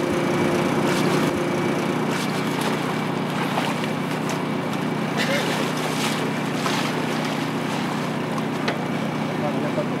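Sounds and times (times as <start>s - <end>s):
engine running steadily: 0.0s - 10.0s.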